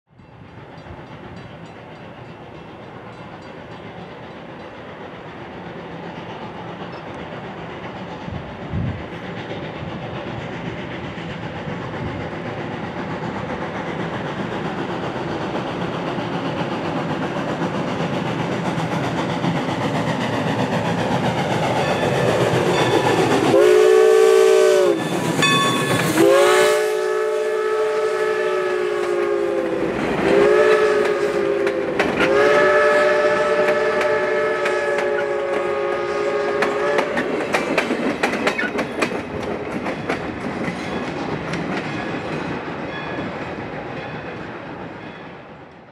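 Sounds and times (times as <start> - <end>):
steam locomotive approaching: 0.1 - 45.9
steam whistle blasts: 23.5 - 37.2
train cars clicking over rail joints: 29.0 - 45.9.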